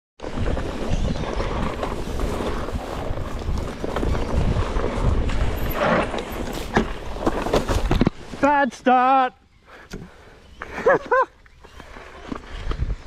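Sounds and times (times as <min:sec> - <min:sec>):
wind buffeting microphone: 0:00.2 - 0:08.0, 0:12.4 - 0:13.0.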